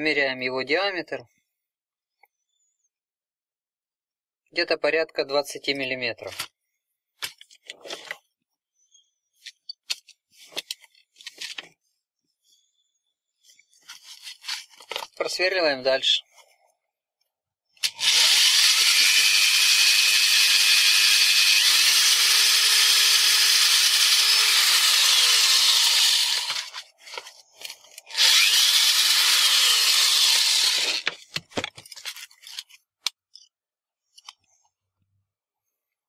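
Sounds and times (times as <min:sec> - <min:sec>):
electric drill through sheet metal: 0:17.8 - 0:26.8, 0:28.1 - 0:31.1.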